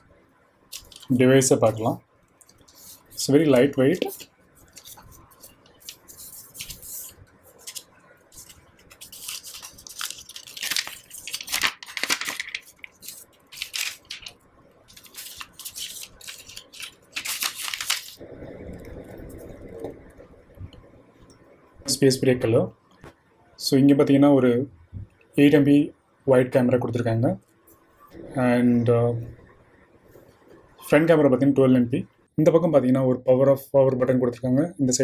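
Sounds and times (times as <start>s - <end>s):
plastic wrap rustling and crinkling: 0.7s - 1.2s, 2.6s - 18.2s.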